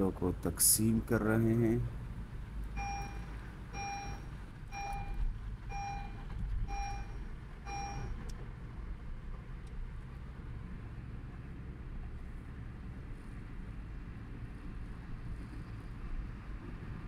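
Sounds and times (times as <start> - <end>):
car driving hum: 0.0 - 17.0
electronic warning chime beeping: 2.8 - 8.2.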